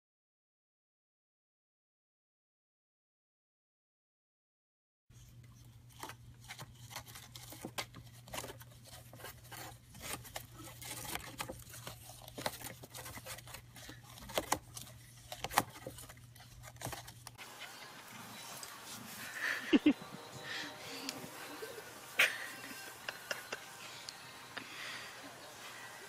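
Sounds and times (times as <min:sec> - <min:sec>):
crackling cage bedding: 0:05.8 - 0:19.8.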